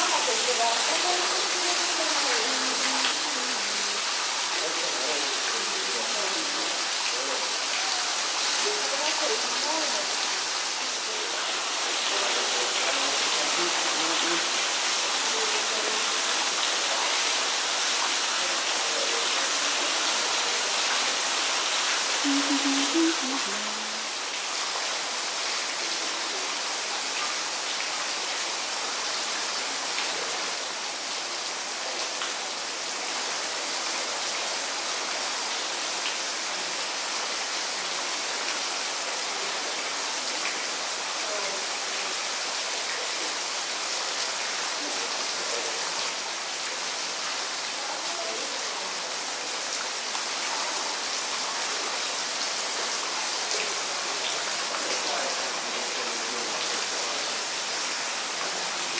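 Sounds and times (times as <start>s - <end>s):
hiss of running water: 0.0s - 58.9s.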